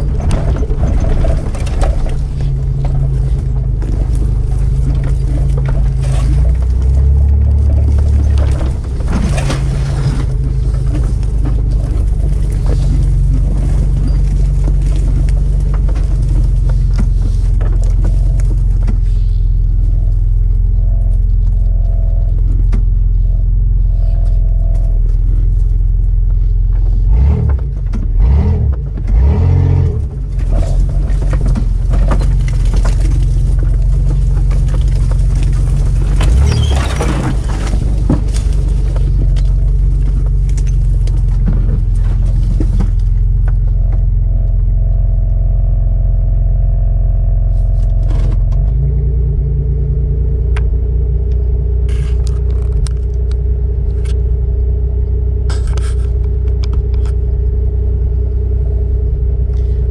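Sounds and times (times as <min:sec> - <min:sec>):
vehicle body thumps over bumps: 0:00.0 - 0:23.7, 0:24.7 - 0:45.2
engine drone inside vehicle: 0:00.0 - 0:59.9.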